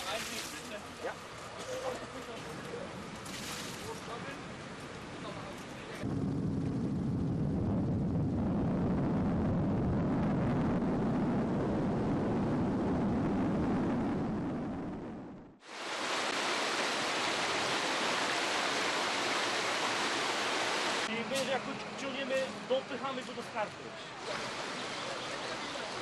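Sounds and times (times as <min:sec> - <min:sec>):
rushing floodwater: 0:00.0 - 0:06.0, 0:15.6 - 0:26.0.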